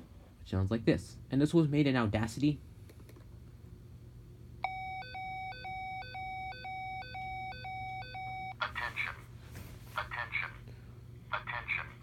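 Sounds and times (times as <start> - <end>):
high-low fire alarm tone: 4.6 - 8.6.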